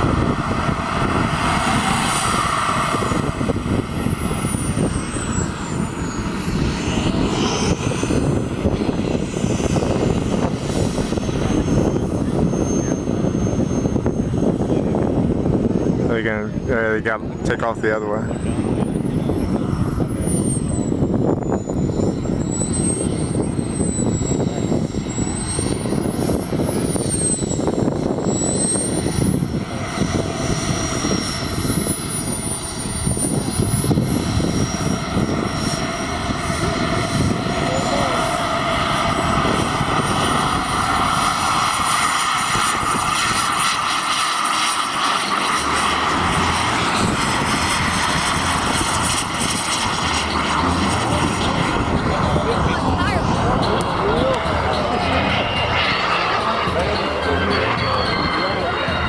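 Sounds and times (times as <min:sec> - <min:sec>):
low rumble: 0:00.0 - 0:59.0
model jet engine whine: 0:00.0 - 0:59.0.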